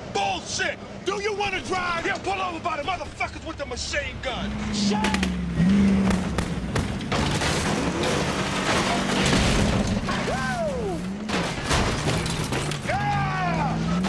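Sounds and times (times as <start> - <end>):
splintering wood crashes: 6.0 - 14.0.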